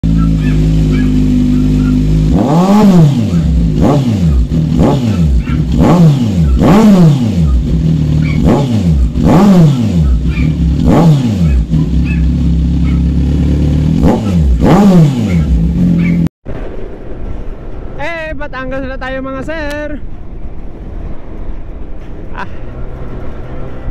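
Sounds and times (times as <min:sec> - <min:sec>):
motorcycle engine revving: 0:00.0 - 0:16.8, 0:22.6 - 0:23.9.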